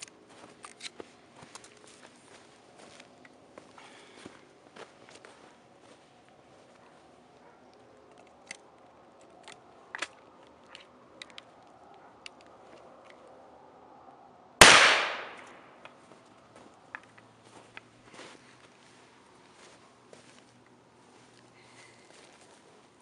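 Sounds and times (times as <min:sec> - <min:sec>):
shotgun shot: 0:14.6 - 0:15.7.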